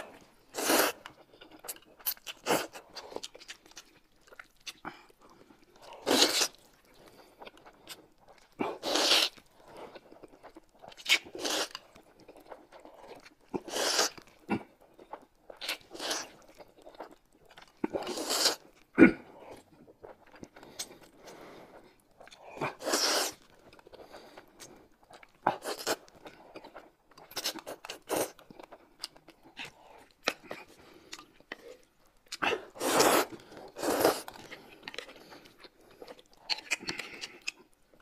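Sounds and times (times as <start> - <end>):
slurping noodles and soup: 0.0 - 1.3, 5.8 - 8.0, 8.6 - 10.0, 11.0 - 11.9, 12.8 - 14.6, 15.7 - 16.5, 17.9 - 22.0, 22.6 - 24.8, 25.5 - 26.8, 32.4 - 36.2
chewing: 0.0 - 38.0.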